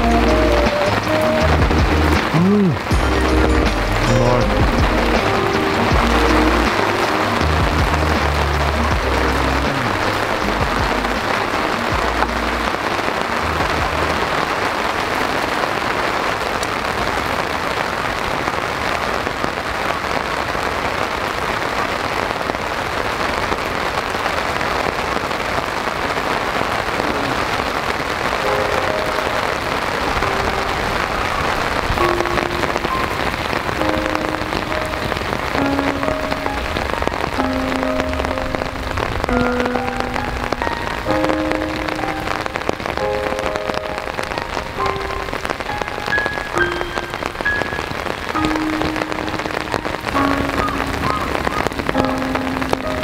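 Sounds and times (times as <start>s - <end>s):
soft background music: 0.0s - 15.9s, 28.5s - 53.0s
heavy rain on a tarp: 0.0s - 53.0s.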